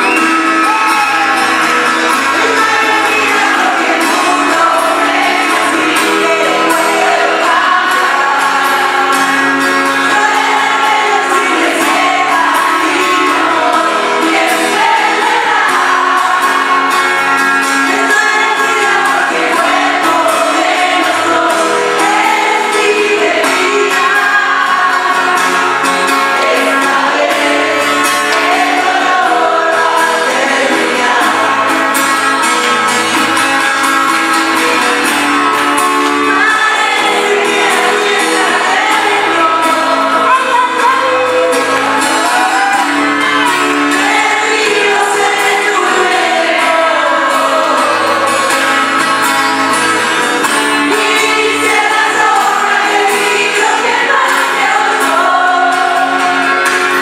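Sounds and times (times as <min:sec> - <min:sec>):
strummed acoustic guitars: 0:00.0 - 0:57.0
woman singing: 0:02.1 - 0:25.8, 0:36.2 - 0:48.8, 0:50.8 - 0:56.6.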